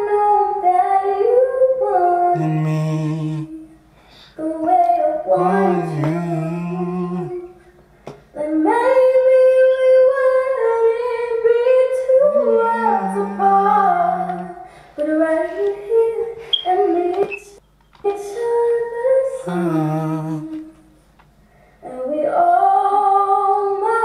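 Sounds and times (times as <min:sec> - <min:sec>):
young woman singing: 0:00.0 - 0:03.8, 0:04.4 - 0:07.6, 0:08.3 - 0:20.8, 0:21.8 - 0:24.0
lower voice: 0:02.3 - 0:03.6, 0:05.3 - 0:07.5, 0:19.4 - 0:20.6.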